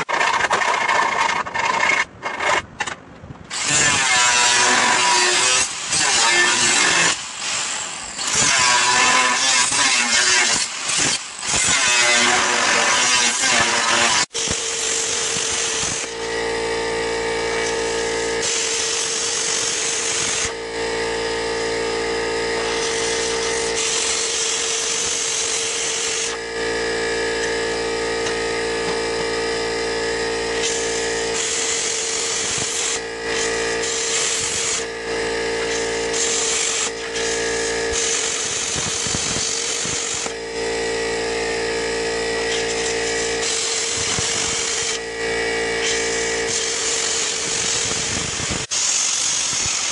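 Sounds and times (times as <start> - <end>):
plasma cutter buzzing hum: 3.6 - 49.9
hiss of air and arc: 30.6 - 34.8, 35.7 - 36.9, 37.9 - 40.3, 45.8 - 49.9.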